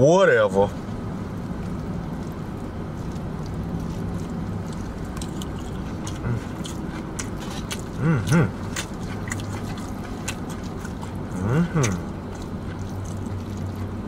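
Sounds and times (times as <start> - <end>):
idling car hum: 0.0 - 14.0
chewing and mouth smacking: 1.0 - 14.0
person humming mm: 8.0 - 8.6, 11.3 - 12.1.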